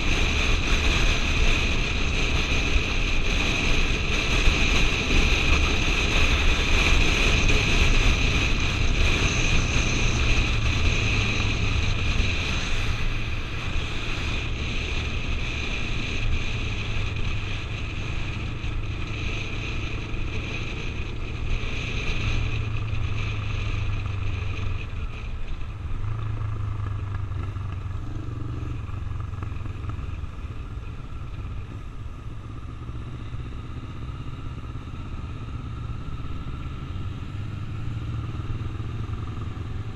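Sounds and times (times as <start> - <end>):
motorcycle engine running: 0.0 - 39.9
wind rushing over microphone: 0.0 - 39.9.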